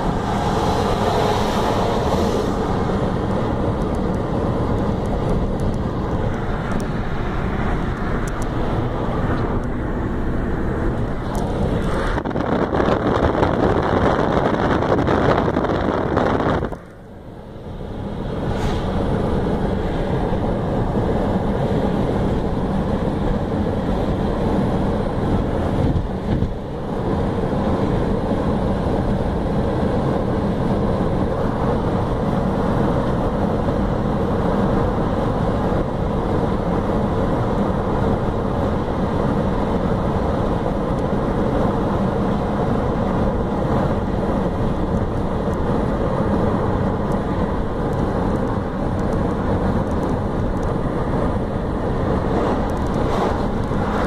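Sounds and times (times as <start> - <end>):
car road noise from inside: 0.0 - 54.0.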